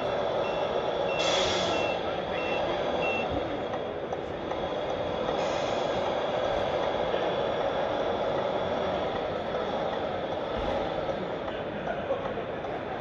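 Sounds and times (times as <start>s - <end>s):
hall noise: 0.0s - 13.0s
reversing beeper: 0.4s - 3.4s
hiss: 1.2s - 1.8s, 5.4s - 6.1s.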